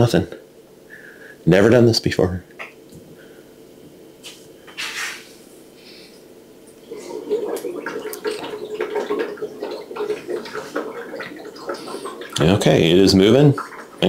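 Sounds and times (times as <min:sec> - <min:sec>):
beer bubbling and gurgling: 0:06.8 - 0:14.0.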